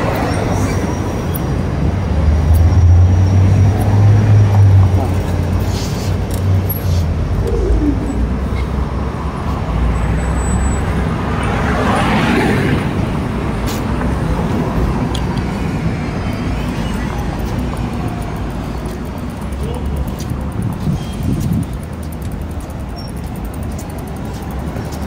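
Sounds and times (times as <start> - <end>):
bicycle rolling rumble: 0.0 - 9.7, 12.7 - 25.0
street traffic: 0.0 - 25.0
vehicle passing: 2.1 - 9.9.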